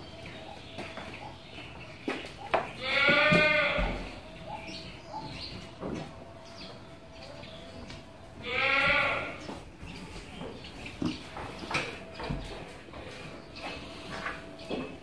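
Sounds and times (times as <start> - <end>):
goat bleating: 2.8 - 4.1, 8.4 - 9.5.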